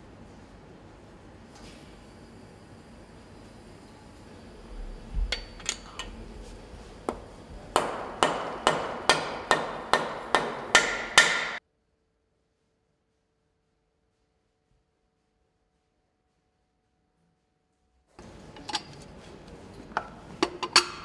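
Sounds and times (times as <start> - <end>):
hammer tapping on metal: 7.1 - 11.6.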